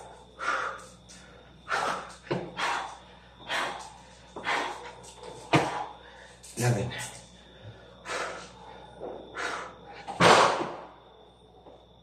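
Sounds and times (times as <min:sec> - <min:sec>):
man breathing hard: 0:00.0 - 0:10.2.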